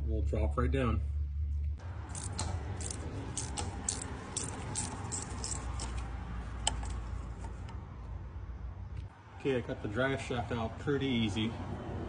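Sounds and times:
steady low hum: 0:00.0 - 0:09.2
ratchet wrench clicking: 0:02.1 - 0:07.0.

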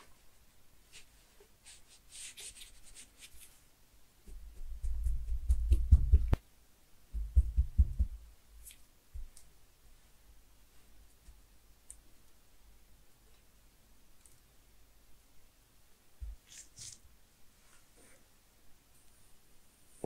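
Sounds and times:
dull low thumps of masher: 0:07.2 - 0:08.2.

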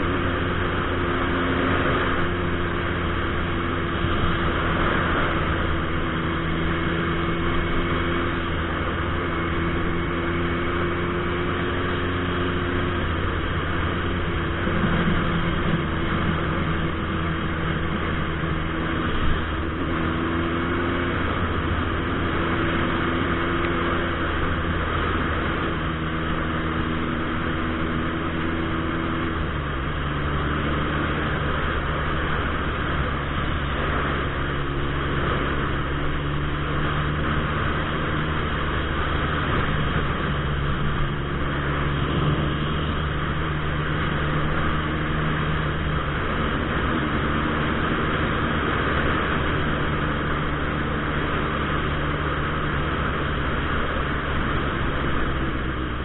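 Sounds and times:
motorcycle engine running: 0:00.0 - 0:56.0
wind noise: 0:12.9 - 0:56.0.

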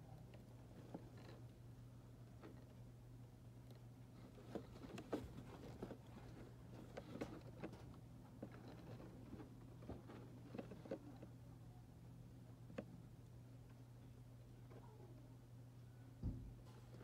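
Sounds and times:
steady low hum: 0:00.0 - 0:17.0
faint clicks and taps: 0:12.6 - 0:13.0.

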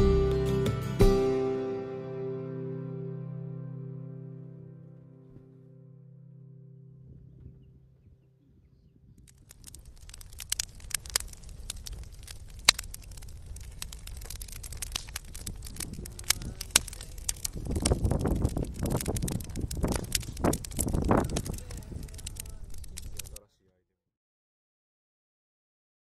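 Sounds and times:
low rumble: 0:06.6 - 0:23.4
wood fire crackling: 0:09.1 - 0:23.4.

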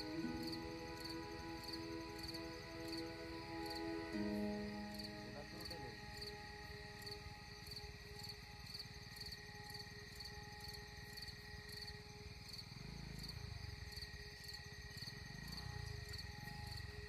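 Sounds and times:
insect drone: 0:00.0 - 0:17.0
insects chirping: 0:00.0 - 0:17.0.

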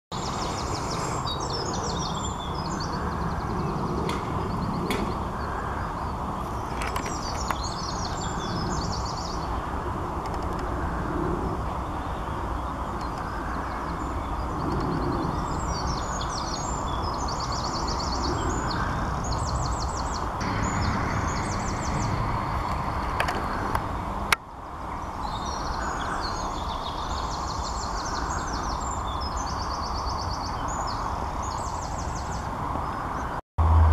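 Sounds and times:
outdoor background rumble: 0:00.1 - 0:33.9
songbird chirping: 0:11.5 - 0:33.4.

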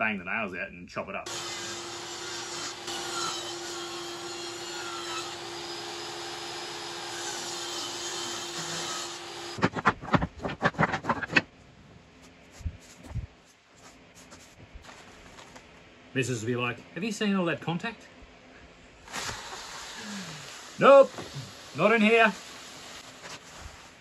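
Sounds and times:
table saw cutting wood: 0:01.3 - 0:09.6
sharp clacks and knocks: 0:09.6 - 0:11.5.

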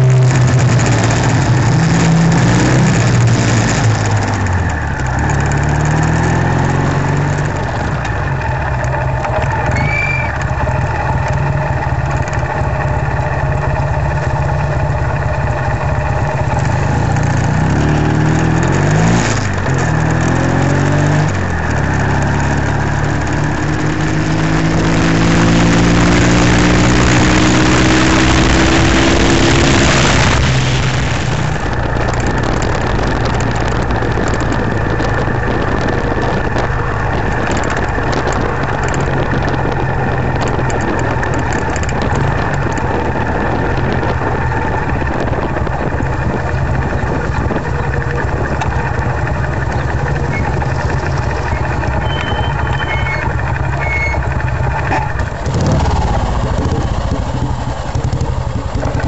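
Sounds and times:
motorcycle engine accelerating: 0:00.0 - 0:59.0
wind on microphone: 0:16.2 - 0:59.0.

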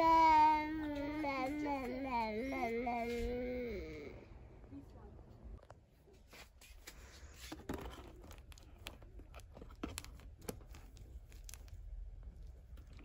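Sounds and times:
light crinkling: 0:05.6 - 0:13.0.

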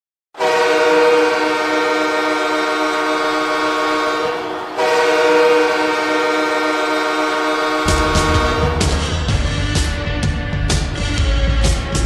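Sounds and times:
goal horn blasts: 0:00.4 - 0:09.4.

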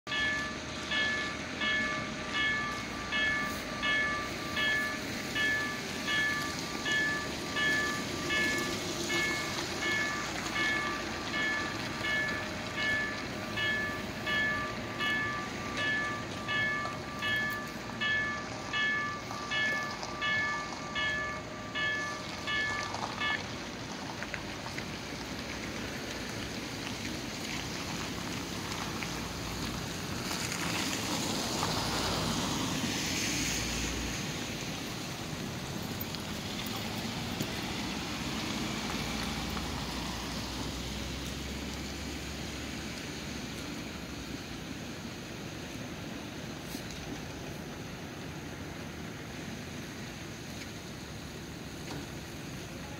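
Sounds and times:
level-crossing warning bell: 0:00.1 - 0:29.7
tyres hissing on wet asphalt: 0:00.1 - 0:52.9.

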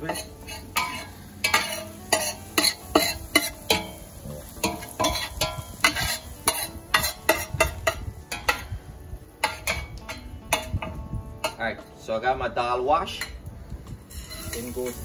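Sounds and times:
metal spoon scraping pot: 0:00.0 - 0:04.0, 0:04.6 - 0:08.6, 0:14.1 - 0:14.8
spoon clinking against metal: 0:00.0 - 0:04.0
food frying in oil: 0:00.0 - 0:08.5, 0:14.1 - 0:15.0.

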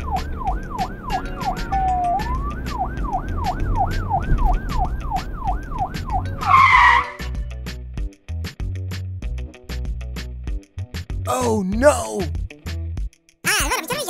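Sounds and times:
police siren: 0:00.0 - 0:07.4.

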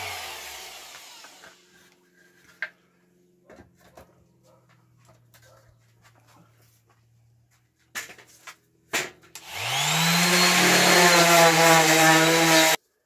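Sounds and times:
electric sander whining on wood: 0:00.0 - 0:01.8, 0:09.4 - 0:12.8.

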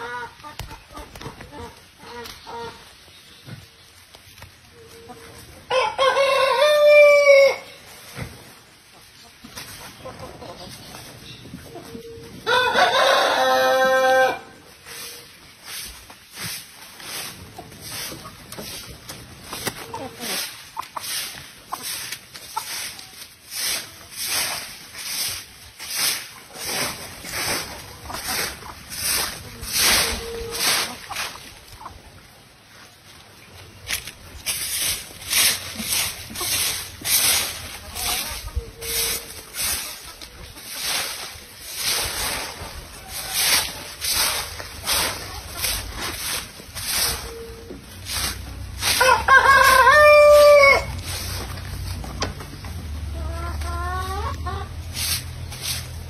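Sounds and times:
broom sweeping dry leaves: 0:01.5 - 0:56.0
rooster crowing: 0:05.7 - 0:07.7, 0:12.5 - 0:14.6, 0:48.9 - 0:51.0.

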